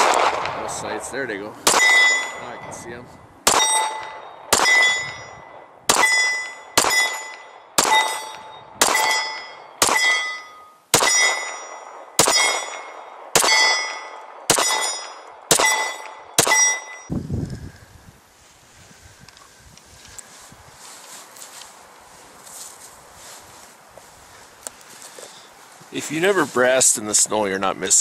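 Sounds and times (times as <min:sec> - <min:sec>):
pistol shots: 0:00.0 - 0:00.7, 0:01.6 - 0:02.4, 0:03.4 - 0:17.1
bullet clanging on steel target: 0:03.5 - 0:17.1.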